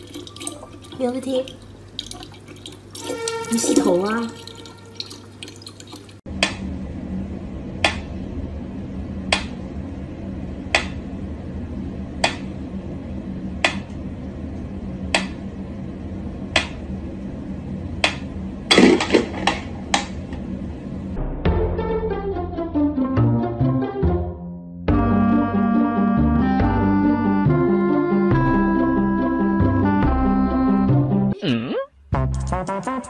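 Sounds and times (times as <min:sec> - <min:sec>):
steady low hum: 0:06.1 - 0:21.7.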